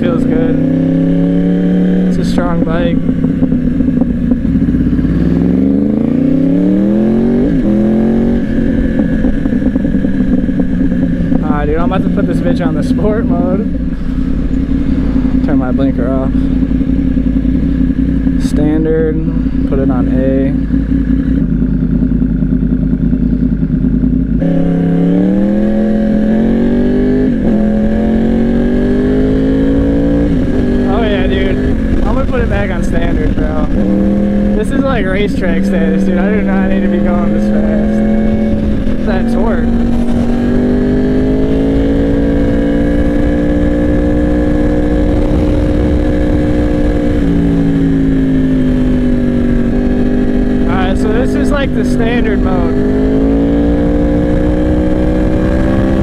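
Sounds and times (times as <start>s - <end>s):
motorcycle engine revving: 0.0s - 56.0s
wind rush on microphone: 24.4s - 56.0s.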